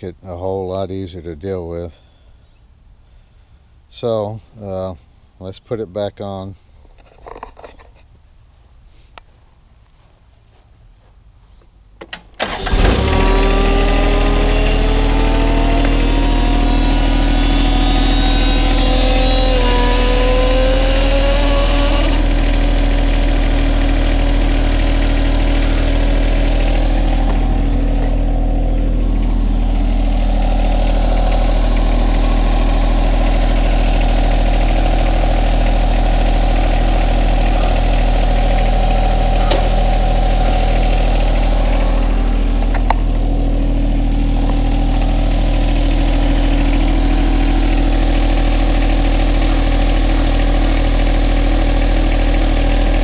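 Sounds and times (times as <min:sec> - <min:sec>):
tractor diesel engine running: 0:11.9 - 0:53.0.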